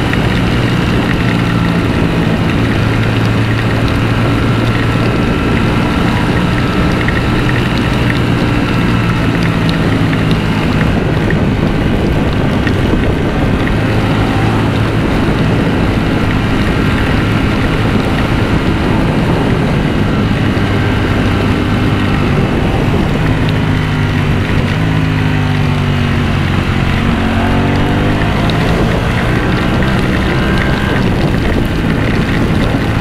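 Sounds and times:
motorcycle engine cruising: 0.0 - 33.0
wind rush on microphone: 0.0 - 33.0.

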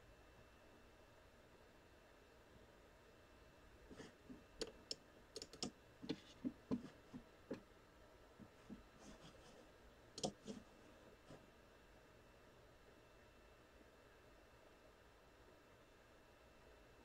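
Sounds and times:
computer keys typing: 4.6 - 6.3, 10.2 - 10.5.

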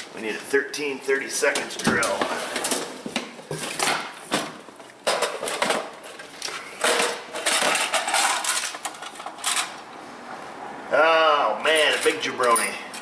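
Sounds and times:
metal tools clattering in toolbox: 6.8 - 9.8, 11.7 - 13.0.

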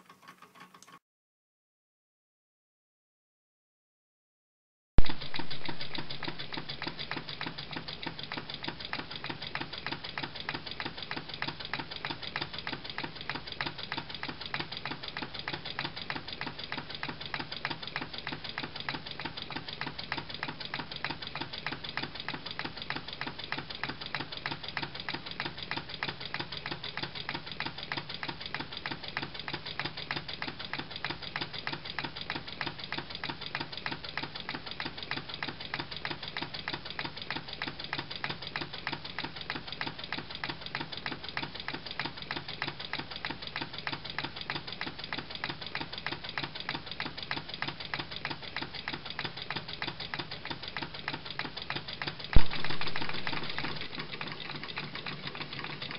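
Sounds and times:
small engine rapid mechanical clicking: 0.0 - 1.0, 5.1 - 55.9.

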